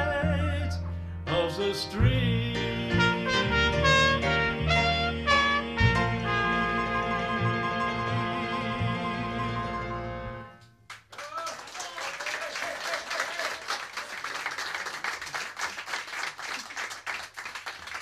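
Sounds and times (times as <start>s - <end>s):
jazz band chord: 0.5s - 10.6s
audience applauding: 10.9s - 18.0s.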